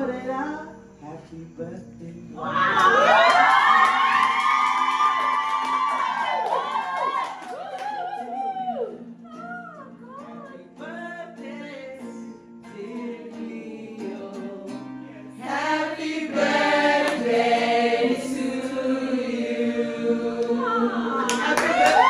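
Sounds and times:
acoustic guitar: 0.0s - 22.0s
woman singing: 9.2s - 15.0s, 20.3s - 22.0s
group of voices singing: 10.3s - 22.0s.

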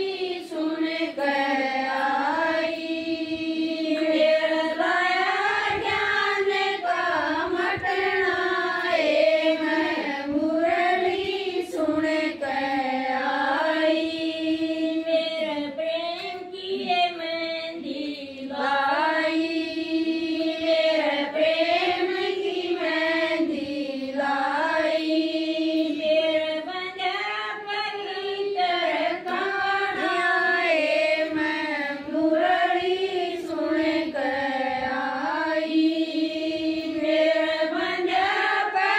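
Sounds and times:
woman singing: 13.6s - 19.6s, 25.7s - 34.3s.

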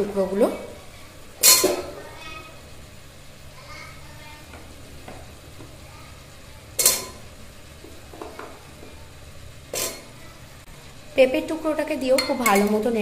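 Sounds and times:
spoon clanking on pot: 6.8s - 7.2s, 12.1s - 12.9s.

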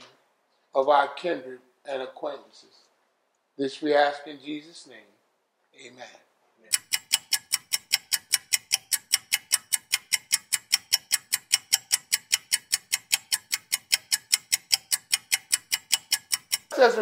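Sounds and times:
rapid clock ticking: 6.7s - 17.0s.

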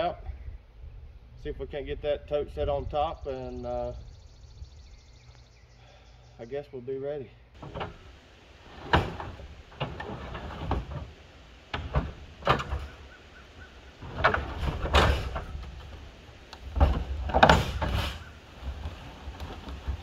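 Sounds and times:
wind rumble on microphone: 0.0s - 5.1s
plastic tank clattering on metal trailer: 7.6s - 20.0s.

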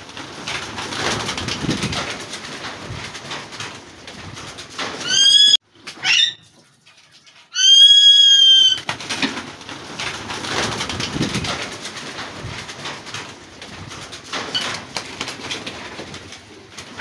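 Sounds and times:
wings flapping and rustling: 0.0s - 17.0s
parakeet calls: 5.0s - 6.4s.

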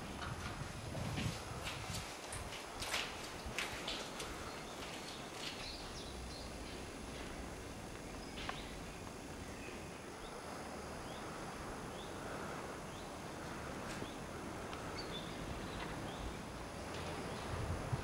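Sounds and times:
outdoor background hiss: 0.0s - 18.0s.

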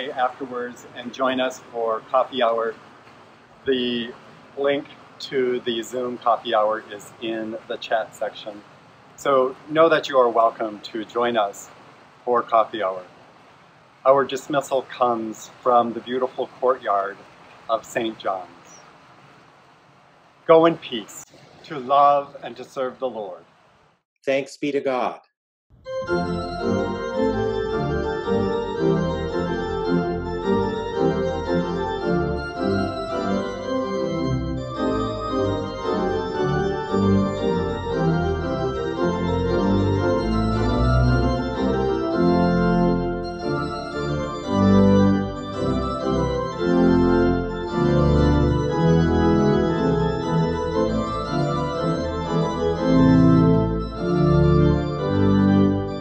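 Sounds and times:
church organ chords: 25.8s - 56.0s
deep organ pedal bass notes: 25.8s - 56.0s.

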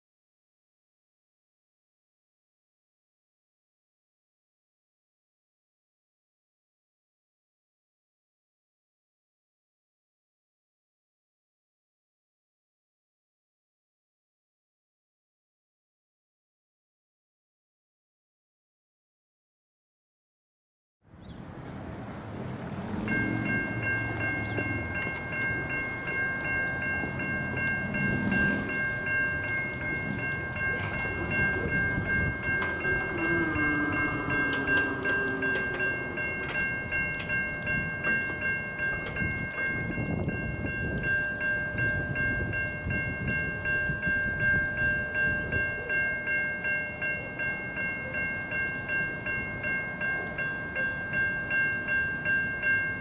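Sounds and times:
electronic crossing bells ringing: 22.4s - 53.0s.

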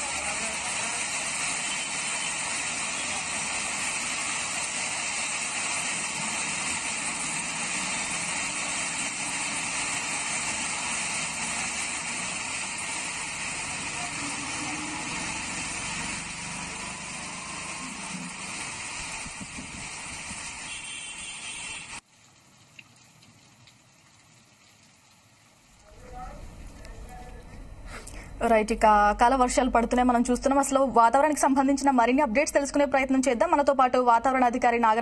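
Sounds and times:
passing traffic: 0.0s - 22.0s
rain on a wet street: 0.0s - 25.9s.

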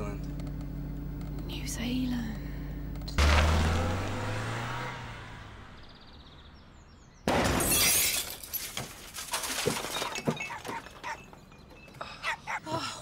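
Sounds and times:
car engine revving: 2.8s - 6.8s
car crashing into bottles: 7.3s - 11.0s
glass breaking and clattering: 7.3s - 11.4s.

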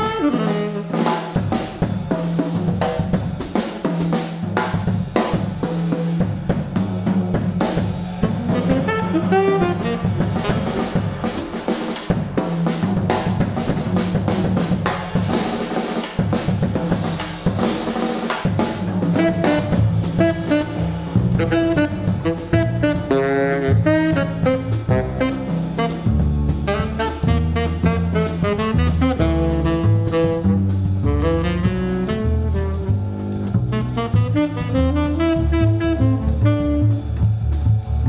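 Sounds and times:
saxophone: 0.0s - 1.5s, 8.1s - 11.7s, 19.0s - 38.0s
jazz drum kit solo: 0.0s - 38.0s.

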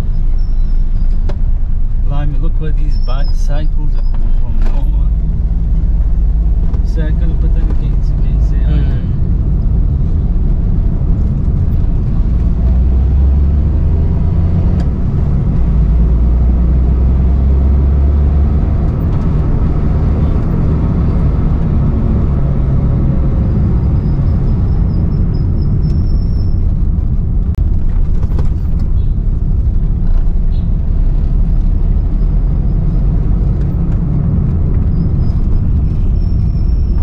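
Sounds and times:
car engine drone: 0.0s - 37.0s
road noise: 0.0s - 37.0s.

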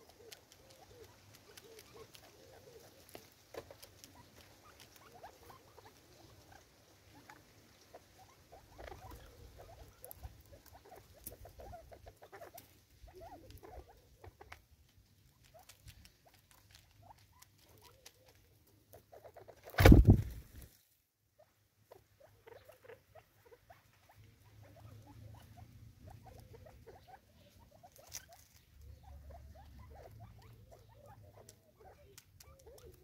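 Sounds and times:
bird pecking and scratching: 0.0s - 20.9s, 21.9s - 33.0s
quiet bird calls: 0.0s - 33.0s
loud thump: 19.8s - 20.4s.

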